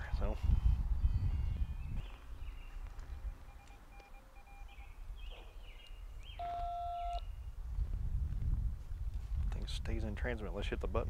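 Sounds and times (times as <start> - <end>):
two-pitch keypad tone beep: 3.2 - 4.8, 6.4 - 7.2.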